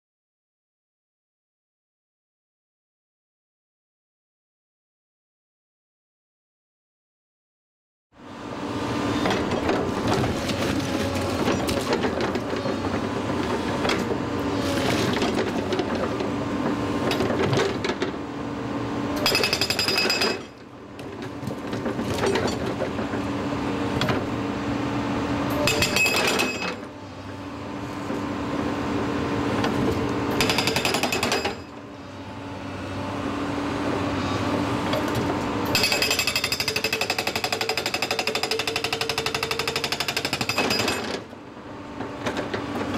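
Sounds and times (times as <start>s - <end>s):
hydraulic breaker hammering rock: 19.2s - 20.6s, 25.5s - 26.9s, 29.6s - 31.7s, 34.9s - 41.3s.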